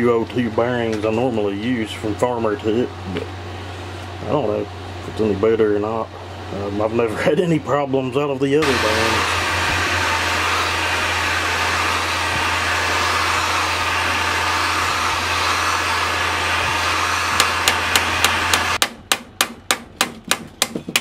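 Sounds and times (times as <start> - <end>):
heat gun blowing: 8.6 - 18.8.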